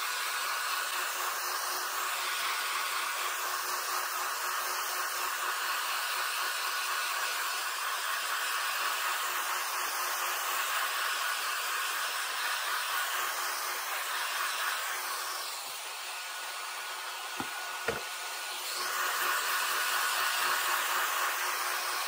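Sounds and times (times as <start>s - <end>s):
air blower rushing: 10.9s - 22.0s.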